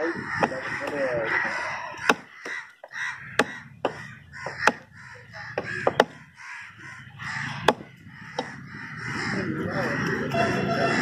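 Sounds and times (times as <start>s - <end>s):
crows cawing: 0.0s - 11.0s
knife chopping on wood: 2.0s - 2.6s, 3.4s - 4.9s, 5.6s - 6.2s, 7.6s - 8.6s.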